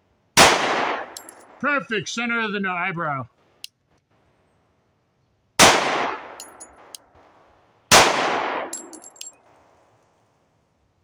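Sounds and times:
pistol shot: 0.4 - 1.2, 5.6 - 6.9, 7.9 - 8.9
brass casings pinging: 1.0 - 2.1, 6.2 - 7.0, 8.6 - 9.5.

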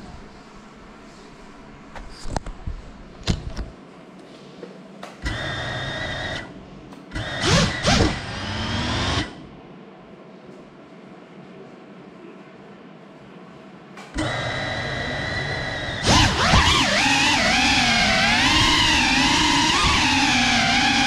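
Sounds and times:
drone motors whining and revving: 5.2 - 6.5, 7.1 - 9.4, 14.2 - 21.0.

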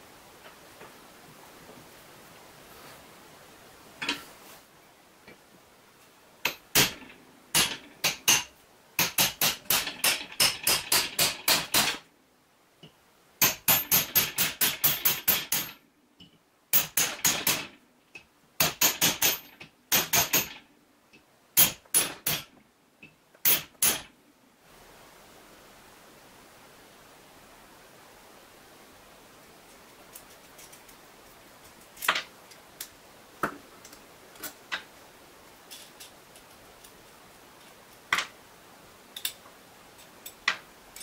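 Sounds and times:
hammer tapping steel strip: 6.4 - 12.0, 13.4 - 17.7, 18.6 - 20.6, 23.4 - 24.1.

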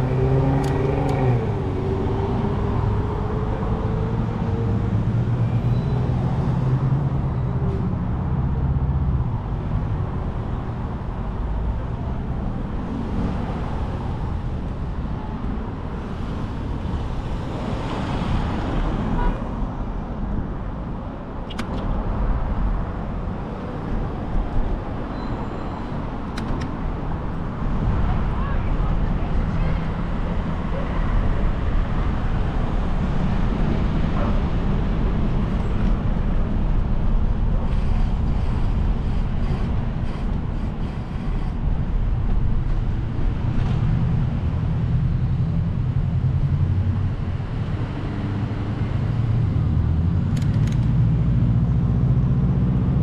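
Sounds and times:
rumble of car traffic: 0.0 - 53.0
sharp clicks: 21.4 - 21.9, 50.3 - 50.9.

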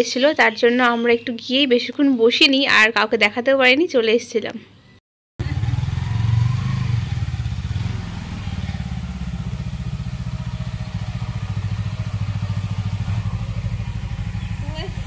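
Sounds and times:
motorcycle engine at low revs: 5.4 - 15.0.

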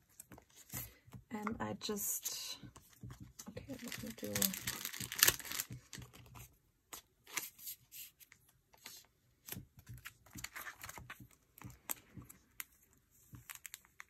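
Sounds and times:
plastic binder pages rustling: 0.0 - 1.3, 2.2 - 14.0.

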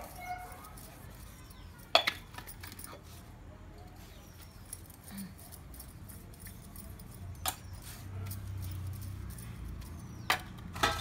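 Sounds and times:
metallic clinks: 0.0 - 11.0
scraping steel utensils: 4.4 - 11.0.

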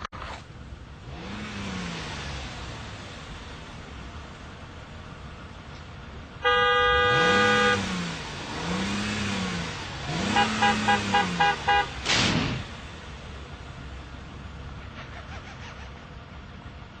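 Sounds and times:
car engine revving: 0.8 - 5.6, 6.4 - 16.1
car horn blasts and toots: 6.4 - 8.1, 10.1 - 12.1.

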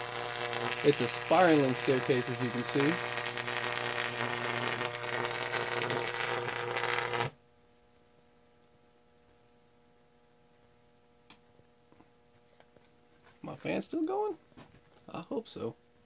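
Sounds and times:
electric arc buzzing and crackling: 0.0 - 7.4
faint steady hum: 0.0 - 16.0.

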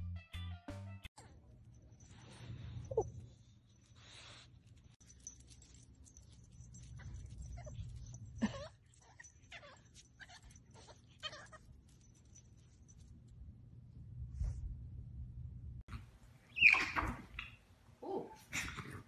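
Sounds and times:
puppy whining and yipping: 6.8 - 12.2, 16.5 - 18.3.

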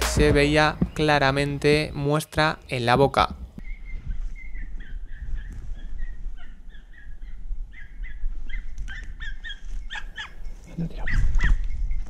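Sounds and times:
distant dogs yelping: 3.7 - 11.7.

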